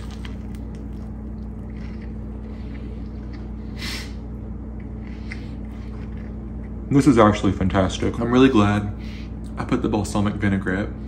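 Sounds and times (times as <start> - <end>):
person chewing food: 0.0 - 6.9
low electrical hum: 0.0 - 11.0.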